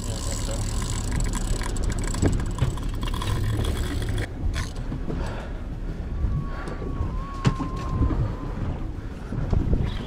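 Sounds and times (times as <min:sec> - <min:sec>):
fishing reel drag ticking: 0:00.0 - 0:04.3
outboard motor running: 0:00.0 - 0:06.0
water noise: 0:00.0 - 0:10.0
wind: 0:00.0 - 0:10.0.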